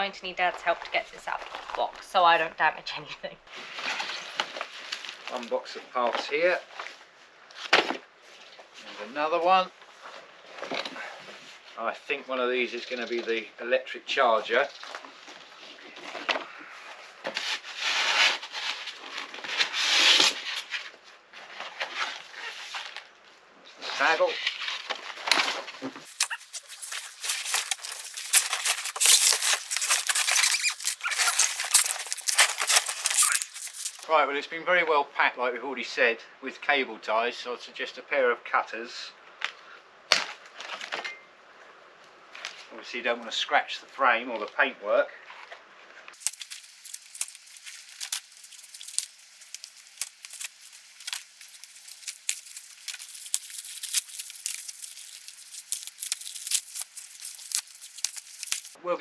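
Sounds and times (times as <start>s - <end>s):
foam and cardboard scraping: 14.7s - 23.0s, 23.8s - 34.0s
packing wrap crinkling and snapping: 24.5s - 34.1s, 46.1s - 58.8s.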